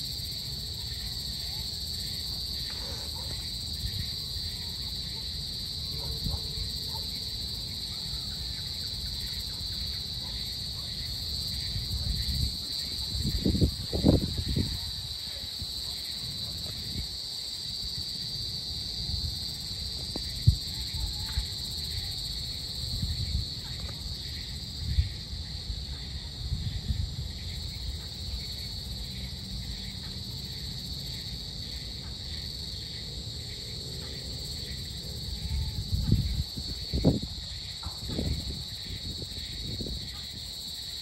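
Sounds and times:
insect chorus trilling: 0:00.0 - 0:41.0.

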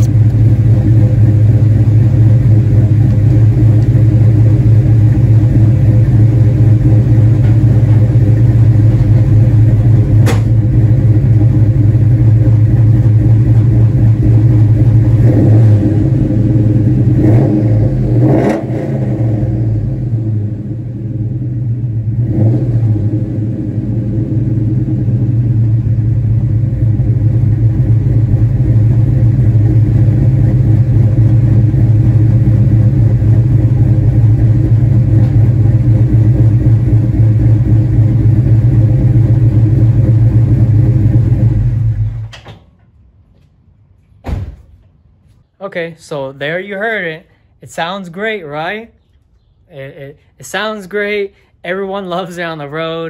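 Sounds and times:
car engine with choppy idle: 0:00.0 - 0:42.3.

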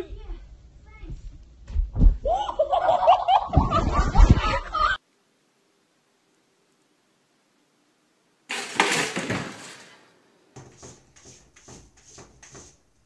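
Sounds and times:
loud clatter: 0:08.5 - 0:10.0.

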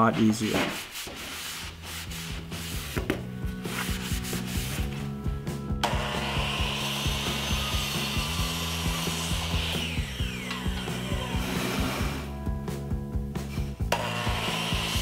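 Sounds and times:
background music: 0:01.4 - 0:15.0
miter saw cutting wood: 0:05.8 - 0:12.3, 0:13.9 - 0:15.0.

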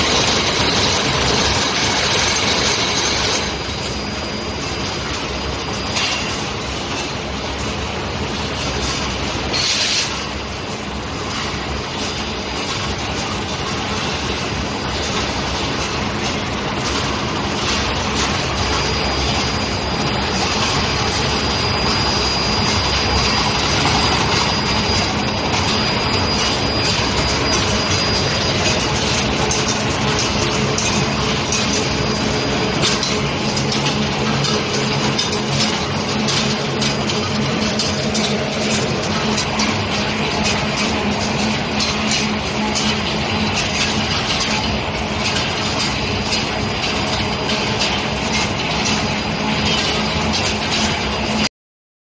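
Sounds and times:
high steady whine: 0:00.0 - 0:51.5
machinery metallic rumble and clatter: 0:00.0 - 0:51.5.

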